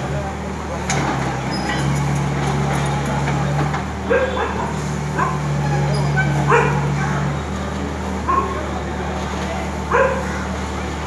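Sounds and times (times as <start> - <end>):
excavator diesel engine humming: 0.0 - 11.0.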